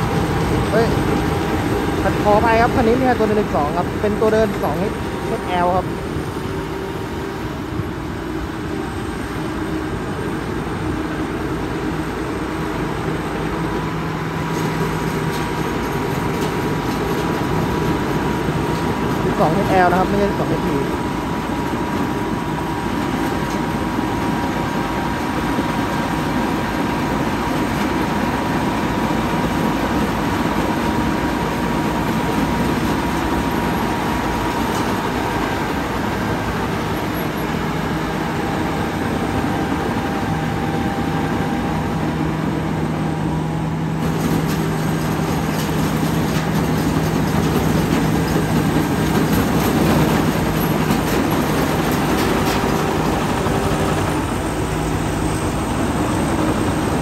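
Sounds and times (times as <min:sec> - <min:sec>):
combine harvester running: 0:00.0 - 0:57.0.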